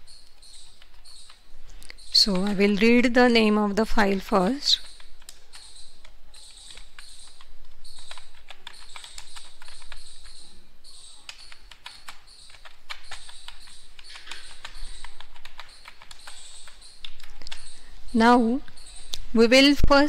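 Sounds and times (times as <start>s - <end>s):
keyboard keys clicking: 4.0s - 10.5s, 11.2s - 17.7s.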